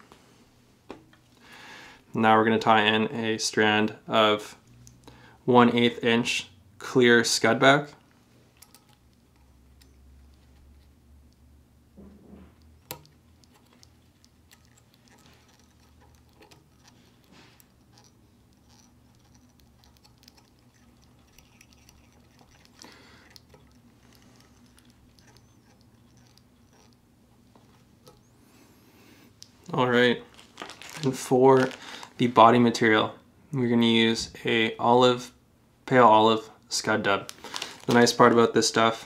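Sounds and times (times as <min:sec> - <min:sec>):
low steady hum: 0:00.0 - 0:39.0
thread scratching as it is wrapped: 0:30.2 - 0:32.2.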